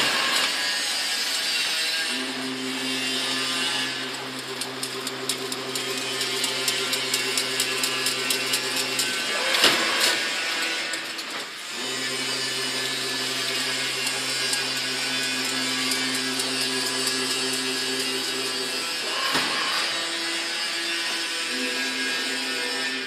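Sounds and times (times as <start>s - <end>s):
loud machine clatter: 0.0s - 20.0s
electric motor hum: 2.1s - 9.6s, 11.7s - 19.1s
machine clicking and rattling: 3.0s - 18.8s.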